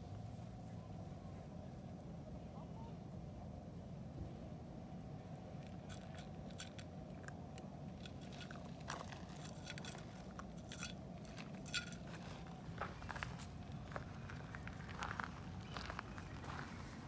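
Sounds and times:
low background rumble: 0.0 - 17.0
animals crunching food: 5.3 - 17.0.

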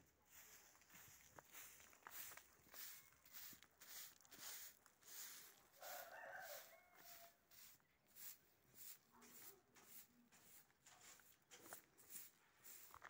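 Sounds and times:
footsteps on a dirt road: 0.0 - 13.0
distant rooster crowing: 5.7 - 7.5.

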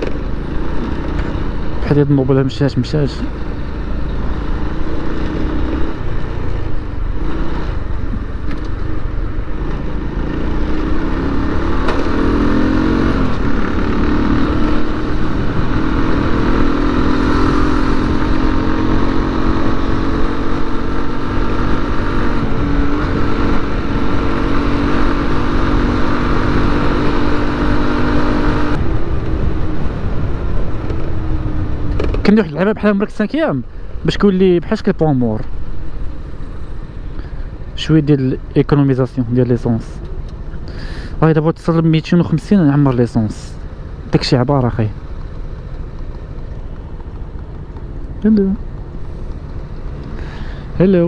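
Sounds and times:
heavy wind noise: 0.0 - 34.2.

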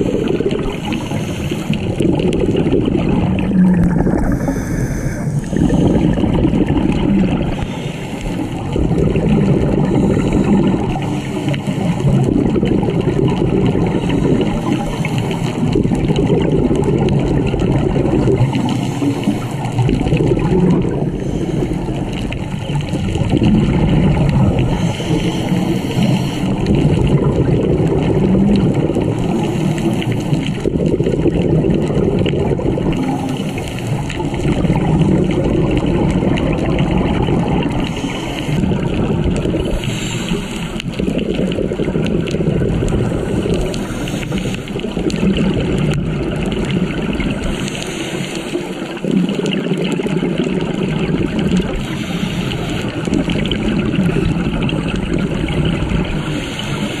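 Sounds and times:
bubbles gurgling: 0.0 - 57.0
scuba diver breathing: 0.0 - 57.0.

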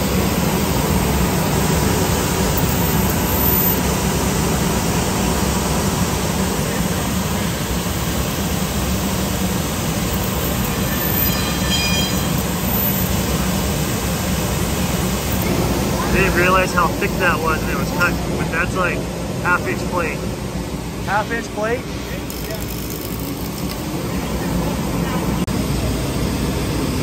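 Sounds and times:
laser cutter rushing noise: 0.0 - 20.3.

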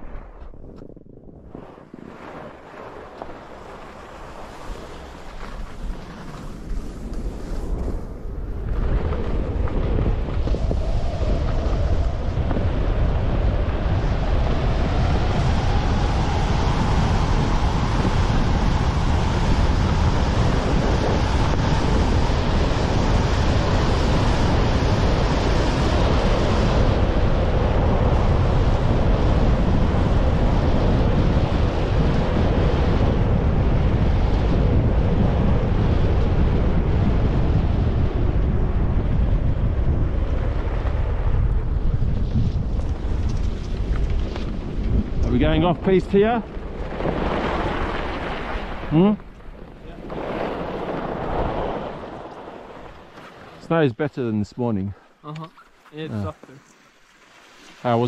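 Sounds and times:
wind buffeting microphone: 0.0 - 53.8
skis scraping over snow: 1.5 - 12.8, 40.2 - 53.8.

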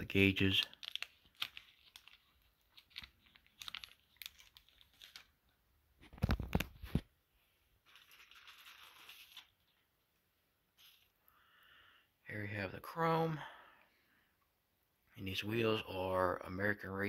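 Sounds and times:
plastic bag rustling: 0.1 - 5.4, 7.8 - 9.9
plastic clicks and crinkles: 0.4 - 5.4, 6.0 - 7.1.

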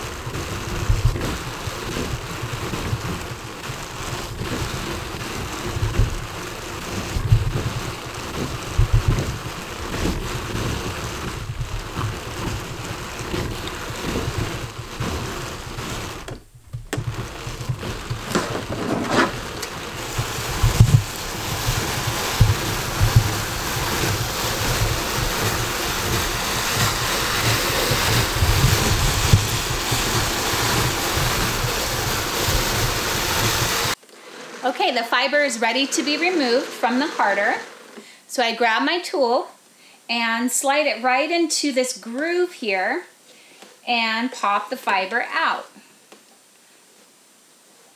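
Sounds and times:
hand-cranked drum carder hissing: 0.0 - 38.3.

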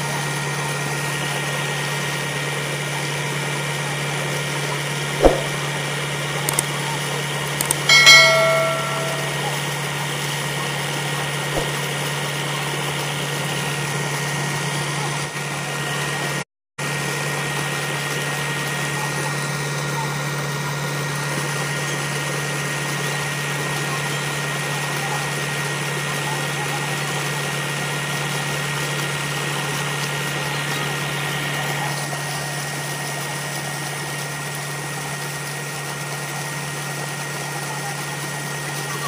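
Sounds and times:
sharp knock: 5.2 - 5.6.

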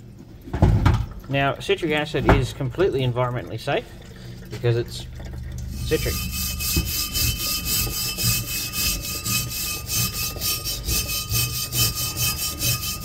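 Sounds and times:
wire brush scraping rusty steel: 5.6 - 13.0.

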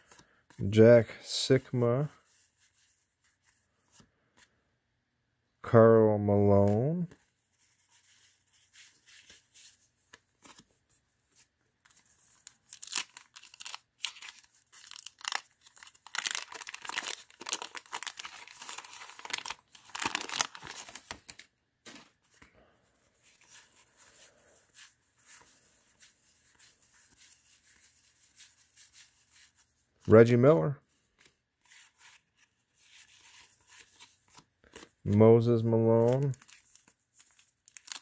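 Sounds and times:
wax paper wrapper crinkling: 7.5 - 22.1, 36.0 - 38.0.

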